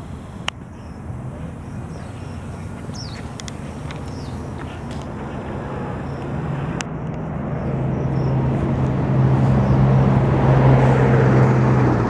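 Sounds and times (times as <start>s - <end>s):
vehicle engine humming: 0.0s - 12.0s.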